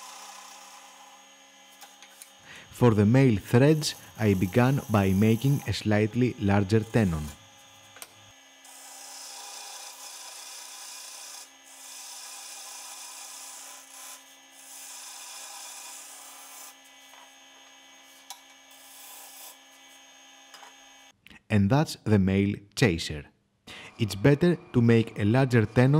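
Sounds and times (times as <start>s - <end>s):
tool scraping spinning wood: 0.0s - 8.0s
wood lathe humming: 0.0s - 21.1s.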